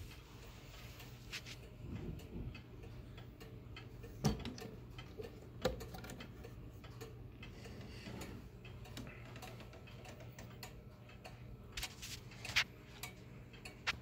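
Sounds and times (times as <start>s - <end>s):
wall clock pendulum ticking: 0.0s - 14.0s.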